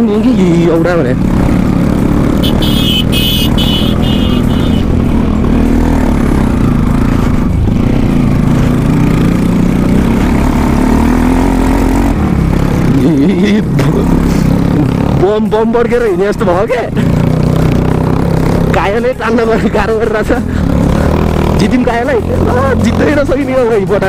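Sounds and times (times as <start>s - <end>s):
motorcycle engine revving: 0.0s - 24.0s.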